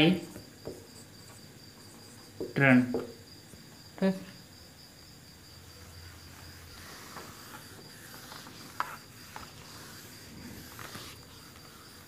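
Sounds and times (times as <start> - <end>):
duster wiping whiteboard: 5.8 - 12.0.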